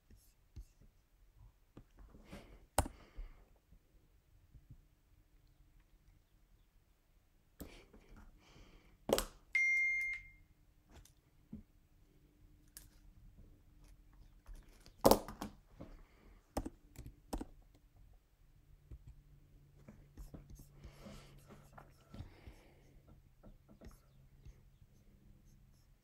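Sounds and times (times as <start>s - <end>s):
electronic beep: 9.6s - 10.4s.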